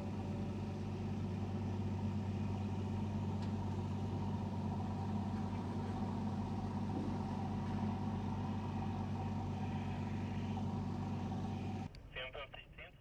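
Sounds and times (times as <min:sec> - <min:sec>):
engine running steadily: 0:00.0 - 0:12.9.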